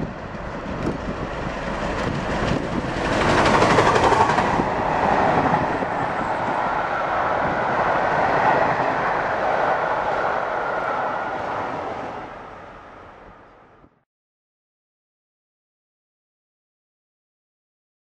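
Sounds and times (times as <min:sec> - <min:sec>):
train wheels clattering on rails: 0:00.0 - 0:06.8.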